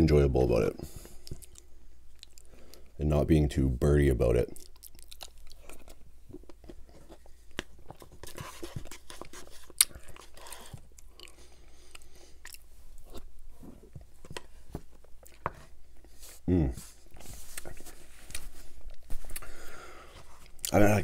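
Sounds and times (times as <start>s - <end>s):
chewing and smacking: 1.0s - 2.9s, 4.5s - 16.1s.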